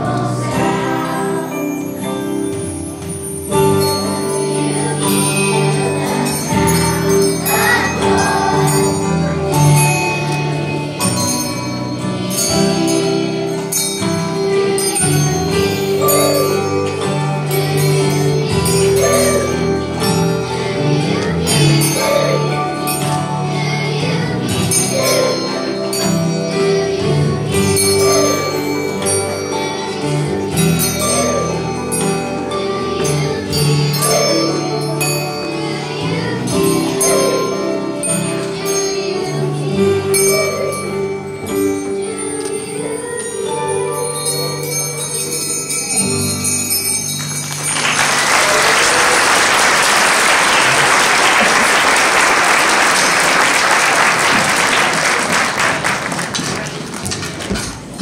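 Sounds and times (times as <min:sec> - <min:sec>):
holiday song with sleigh bells: 0:00.0 - 0:56.7
audience applauding: 0:47.4 - 0:57.6.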